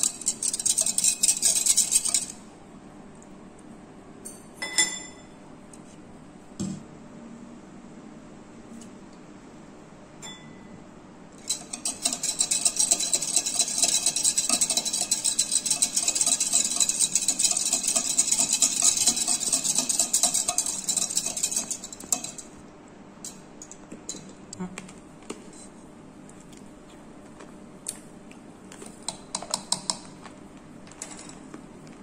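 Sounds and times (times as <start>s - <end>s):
spoon stirring in plastic jug: 0.0s - 2.4s, 11.4s - 22.6s, 28.7s - 32.0s.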